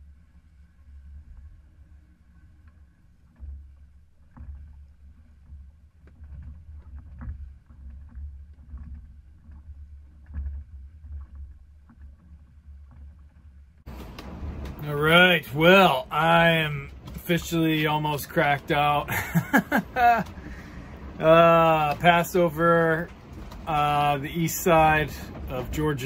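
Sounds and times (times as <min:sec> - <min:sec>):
low rumble of hull through sea: 0:00.0 - 0:26.0
knocks and clicks: 0:13.9 - 0:26.0.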